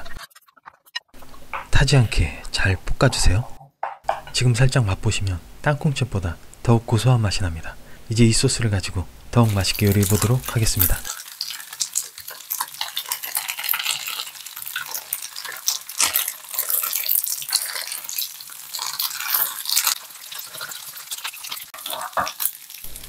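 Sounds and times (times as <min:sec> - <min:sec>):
spoon and spatula scraping: 0:00.0 - 0:01.6, 0:09.5 - 0:23.0
tofu sizzling in oil: 0:09.4 - 0:23.0.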